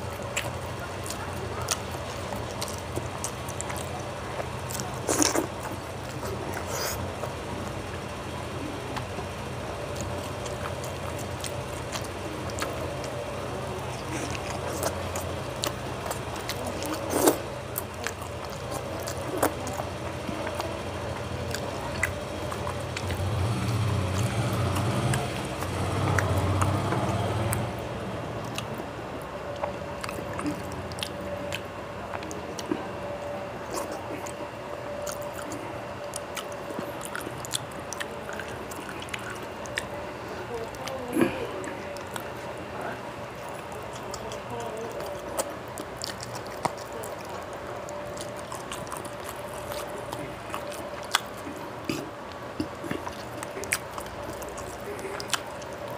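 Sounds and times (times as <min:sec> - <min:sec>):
chewing and lip-smacks: 0:00.0 - 0:55.9
fingers squishing food: 0:00.0 - 0:55.9.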